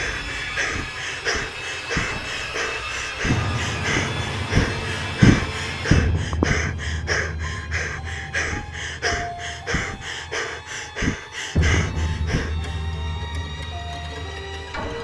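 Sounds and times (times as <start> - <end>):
person panting: 0.0 - 12.8
dull low thumps: 2.0 - 10.4, 11.0 - 13.9.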